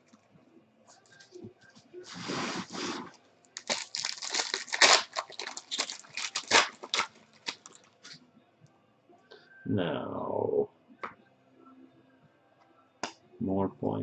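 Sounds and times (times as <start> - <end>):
foil wrapper crinkling: 2.1 - 8.2.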